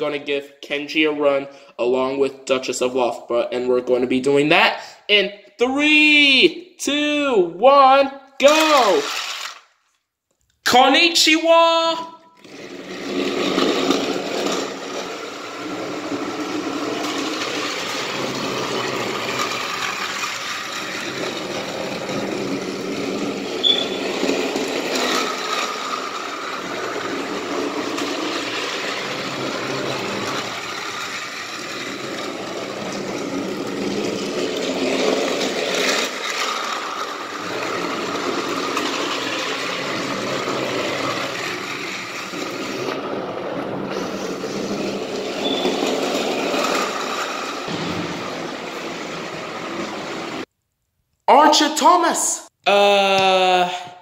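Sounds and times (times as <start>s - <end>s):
toy train motor whirring: 8.5s - 9.8s, 12.4s - 43.0s, 43.9s - 47.7s.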